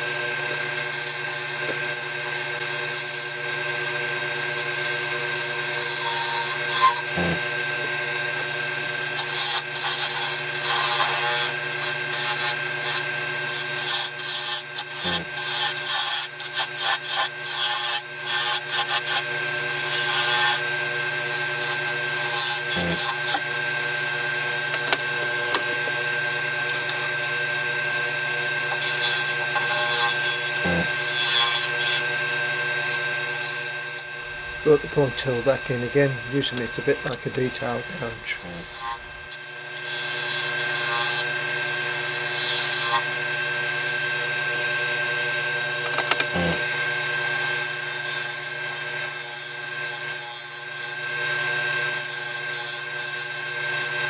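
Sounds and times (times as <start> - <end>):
turning tool scraping wood: 0.0 - 43.3, 45.8 - 54.0
wood lathe motor hum: 0.0 - 54.0.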